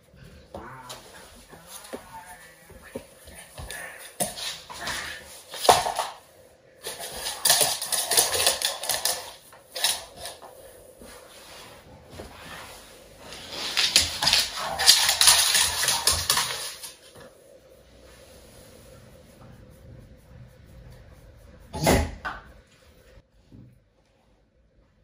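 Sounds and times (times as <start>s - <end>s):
dog scuffling: 0.1s - 6.2s, 6.8s - 17.3s
dog claws clicking on floor: 3.6s - 6.2s, 6.8s - 10.6s, 13.6s - 17.3s.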